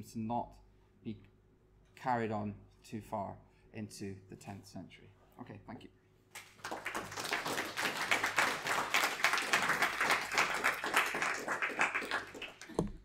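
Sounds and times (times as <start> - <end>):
audience applauding: 6.4 - 12.8.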